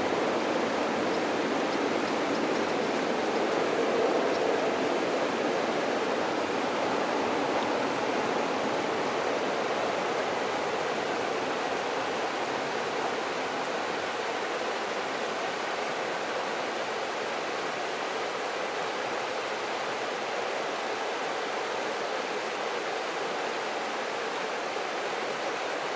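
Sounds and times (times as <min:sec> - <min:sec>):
river water rushing over stones: 0:00.0 - 0:25.9.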